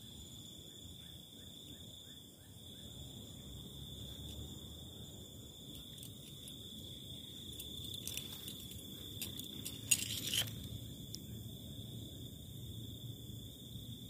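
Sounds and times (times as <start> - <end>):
insects chirring: 0.0 - 14.0
rustling noise: 7.5 - 10.8.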